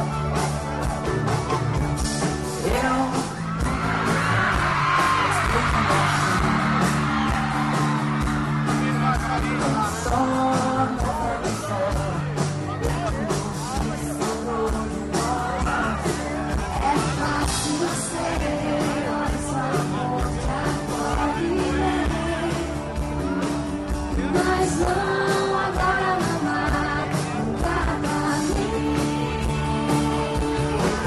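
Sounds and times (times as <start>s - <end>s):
electric guitars: 0.0s - 31.0s
live pop-rock band: 0.0s - 31.0s
woman singing: 16.7s - 22.9s, 24.1s - 31.0s.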